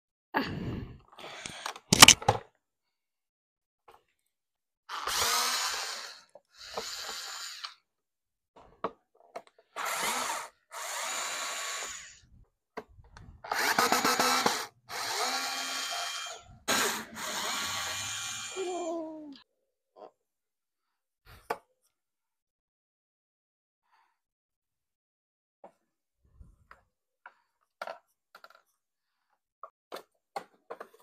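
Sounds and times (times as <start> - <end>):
electric screwdriver bursts: 1.9 - 2.2, 13.5 - 18.6.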